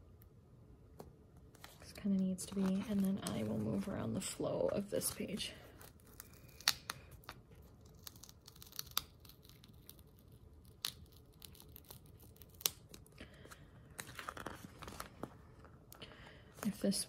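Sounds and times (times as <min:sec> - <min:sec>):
sticker peeling rustle: 0:01.6 - 0:13.2.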